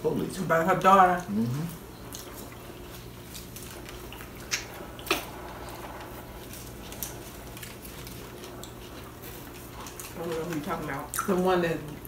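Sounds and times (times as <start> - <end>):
steady low hum: 0.0 - 12.0
chewing: 0.7 - 12.0
small clicks and smacks: 2.0 - 12.0.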